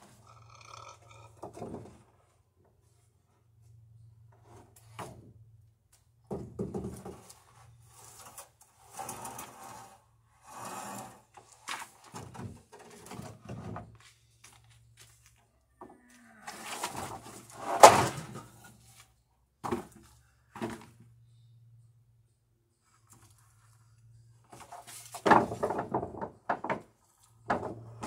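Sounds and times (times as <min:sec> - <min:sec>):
wooden boards knocking and scraping: 0:06.3 - 0:07.3, 0:16.7 - 0:18.5, 0:19.6 - 0:21.0, 0:24.6 - 0:28.0.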